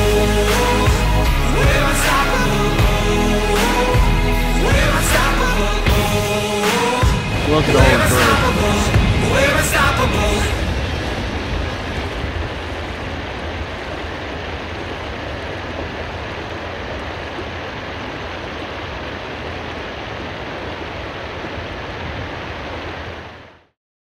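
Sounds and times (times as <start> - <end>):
water rushing on sea: 6.2 - 23.7
wind: 8.2 - 23.7.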